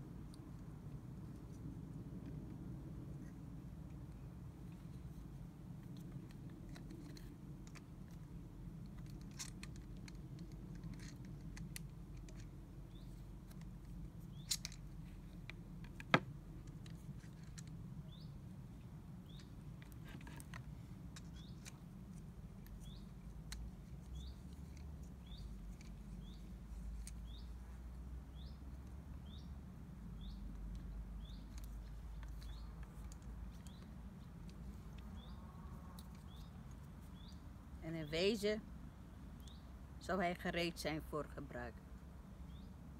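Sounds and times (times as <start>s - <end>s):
low steady hum: 0.0s - 42.9s
plastic and metal parts clicking: 6.0s - 12.6s
bird chirping: 12.3s - 13.6s, 14.2s - 15.4s, 17.2s - 20.6s, 21.2s - 21.8s, 22.6s - 38.5s, 39.2s - 39.8s, 42.4s - 42.8s.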